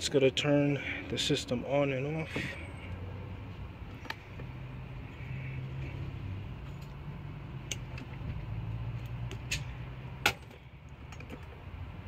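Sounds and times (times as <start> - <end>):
wires and connectors clicking: 7.6 - 9.6.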